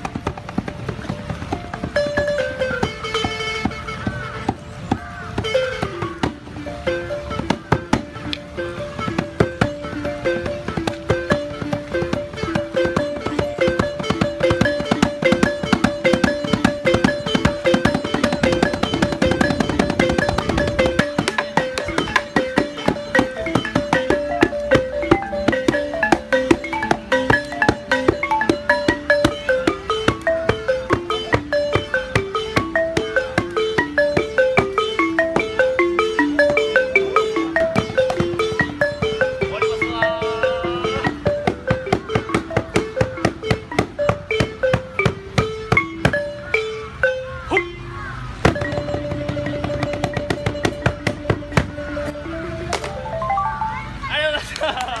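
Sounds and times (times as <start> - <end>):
drum struck with sticks: 0.0 - 46.3
kora plucked melody: 0.0 - 55.0.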